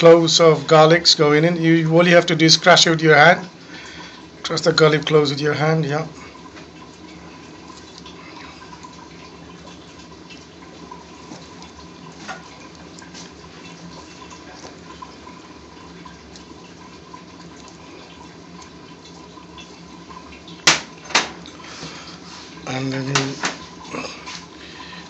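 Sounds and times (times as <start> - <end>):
room hum: 0.0 - 25.0.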